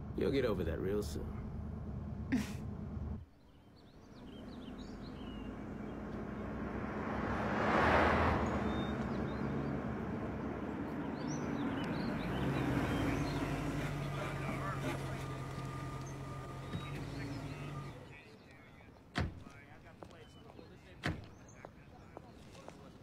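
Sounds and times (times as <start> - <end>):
birds chirping: 0.0 - 23.0
car driving up: 3.8 - 18.6.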